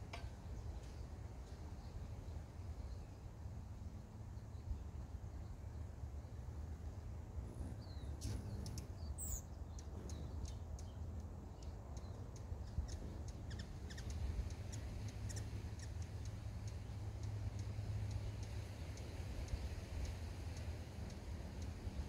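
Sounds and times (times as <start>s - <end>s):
low background rumble: 0.0s - 22.0s
hummingbird chip notes: 6.9s - 22.0s.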